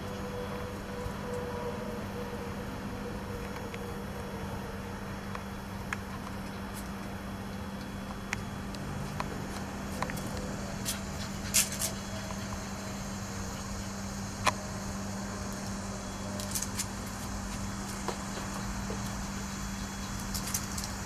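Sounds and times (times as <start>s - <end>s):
steady low hum: 0.0s - 21.0s
puppy claws clicking on concrete: 5.3s - 12.9s, 15.5s - 21.0s.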